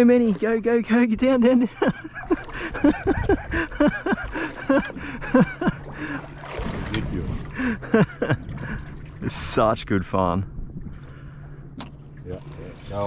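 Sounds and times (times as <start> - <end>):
water washing: 0.0 - 9.9
boat noise: 0.0 - 13.0
steady low hum: 0.0 - 13.0.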